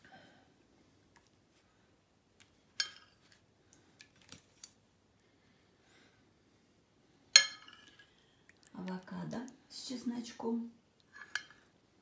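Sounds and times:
metal spoon clinking on bowl: 2.8s - 3.2s, 7.4s - 8.0s, 11.2s - 11.6s.

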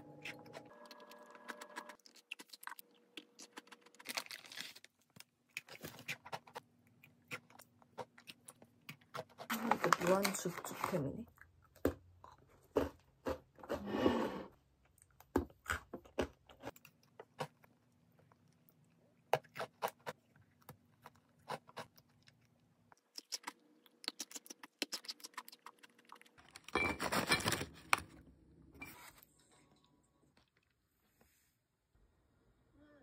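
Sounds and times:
cookies being chewed: 0.1s - 13.7s, 14.6s - 28.2s
plastic bag crinkling: 3.6s - 5.2s.

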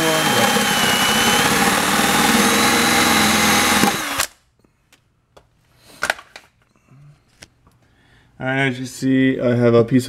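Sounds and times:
cordless drill running: 0.0s - 4.3s.

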